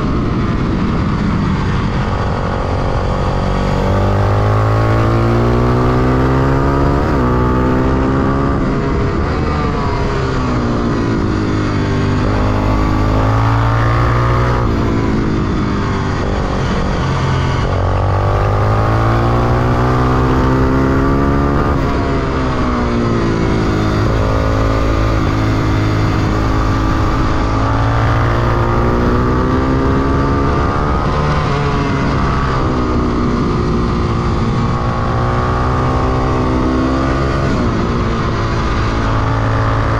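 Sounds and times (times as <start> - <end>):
motorcycle engine revving: 0.0 - 39.9
wind rush: 0.0 - 39.9.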